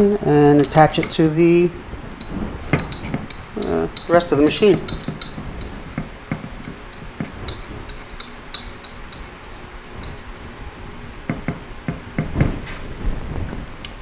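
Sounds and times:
metal parts clicking and clinking: 0:02.2 - 0:09.3.

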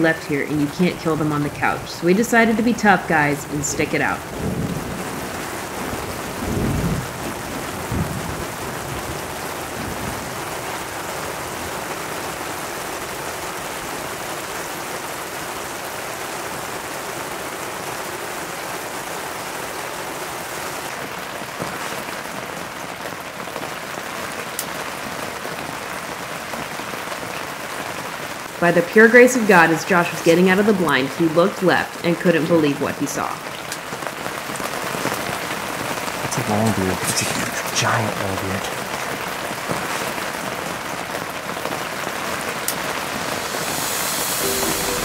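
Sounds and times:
low thunder rumbling: 0:00.0 - 0:10.6
heavy rain pouring: 0:00.0 - 0:45.0.

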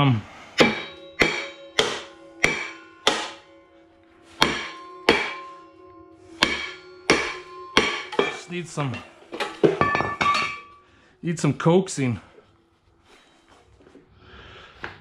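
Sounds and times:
hammer striking metal: 0:00.5 - 0:03.7, 0:04.3 - 0:10.8.

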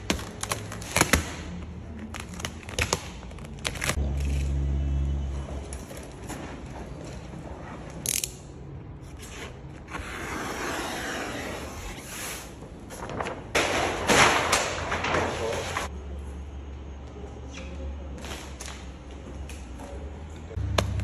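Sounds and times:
plastic sheet rustling and crackling: 0:12.8 - 0:15.9.

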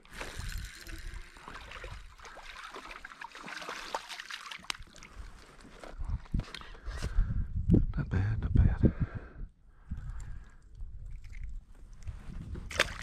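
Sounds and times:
fish splashing in water: 0:00.1 - 0:05.2.

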